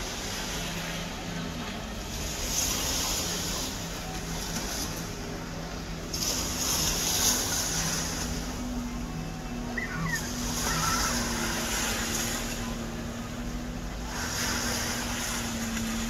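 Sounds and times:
distant boat engines droning: 0:00.0 - 0:16.0
hiss of surf or wind: 0:10.3 - 0:16.0.

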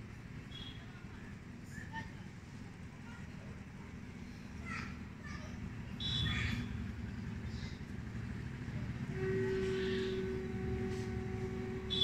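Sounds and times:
low outdoor background rumble: 0:00.0 - 0:12.0
steady droning hum: 0:02.5 - 0:12.0.

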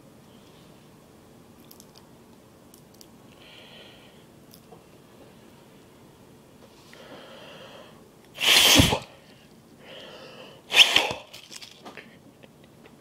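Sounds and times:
person breathing in: 0:03.4 - 0:04.3, 0:06.9 - 0:08.0, 0:09.1 - 0:10.7
person blowing hard: 0:08.4 - 0:09.1, 0:10.7 - 0:11.3.

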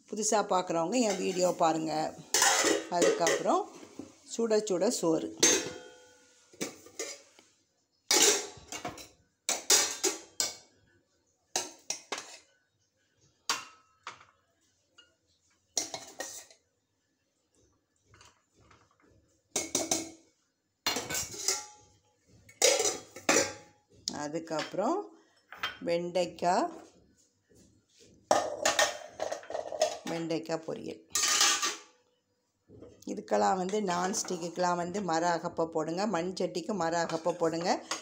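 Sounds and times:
spoon and lid clanking on pot: 0:22.5 - 0:23.7, 0:28.3 - 0:30.3, 0:31.1 - 0:31.9.

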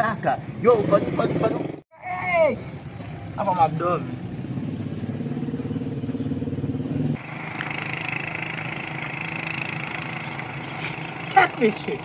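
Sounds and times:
engine running: 0:03.7 - 0:12.0.

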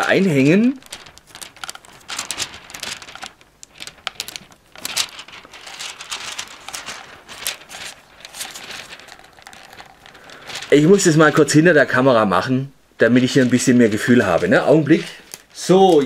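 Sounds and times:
plastic toy clicking and rustling: 0:00.7 - 0:11.4.

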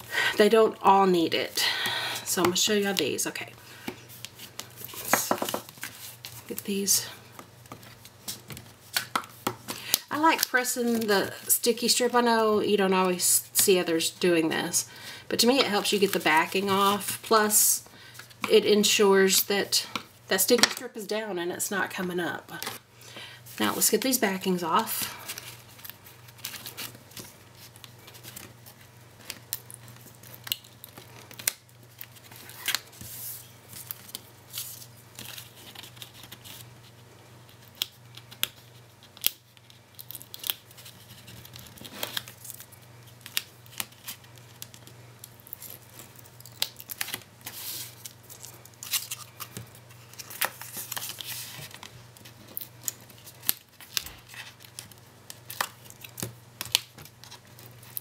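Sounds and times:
paper handling: 0:25.2 - 0:58.0.

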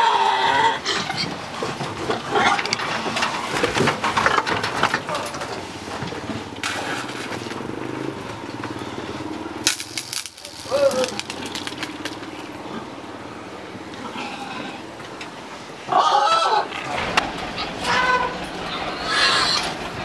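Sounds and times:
pigs grunting and squealing: 0:00.0 - 0:05.7, 0:13.9 - 0:15.0, 0:15.8 - 0:20.0.

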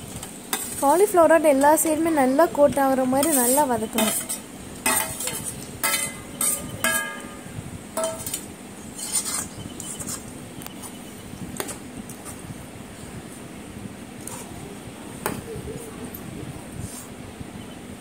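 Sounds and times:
metal ladle scraping a pan: 0:03.2 - 0:07.4, 0:08.0 - 0:10.2
ladle clinking on metal pan: 0:04.0 - 0:08.4.

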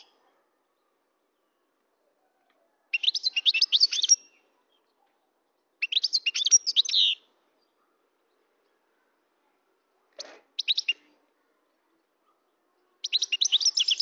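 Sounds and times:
finch twittering song: 0:02.9 - 0:04.9, 0:05.8 - 0:07.3, 0:10.2 - 0:11.1, 0:13.0 - 0:14.0.

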